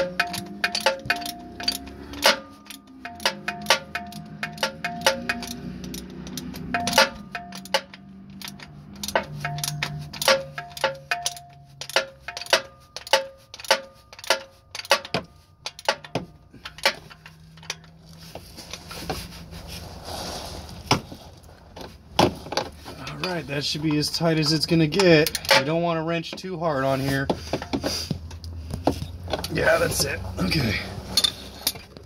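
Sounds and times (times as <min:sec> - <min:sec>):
ratchet wrench clicking: 0:00.0 - 0:17.9.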